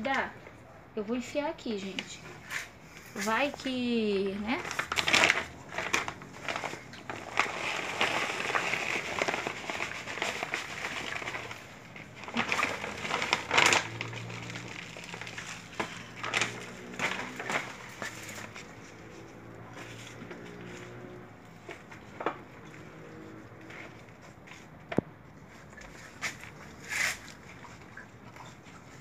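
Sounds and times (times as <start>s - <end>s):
plastic bag crinkling: 3.2s - 24.6s
soil pouring into pot: 6.9s - 11.7s.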